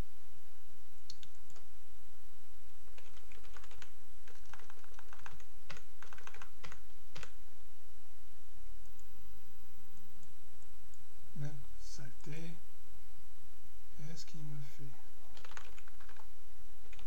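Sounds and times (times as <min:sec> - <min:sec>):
steady low hum: 0:00.0 - 0:17.0
computer keyboard typing: 0:03.0 - 0:07.4, 0:15.3 - 0:16.3.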